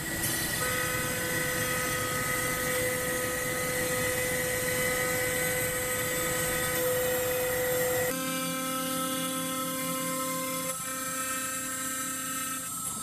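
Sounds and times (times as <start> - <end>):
router spindle high whine: 0.0 - 13.0
second steady machine tone: 0.5 - 13.0.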